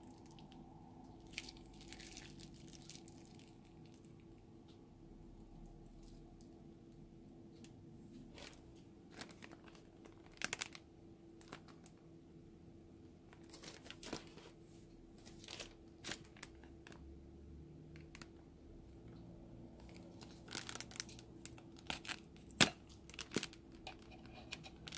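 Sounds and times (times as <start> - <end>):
faint steady hum: 0.0 - 24.9
plastic bags crinkling: 1.2 - 4.2, 8.2 - 10.8, 11.4 - 12.0, 13.3 - 17.0, 19.8 - 24.9.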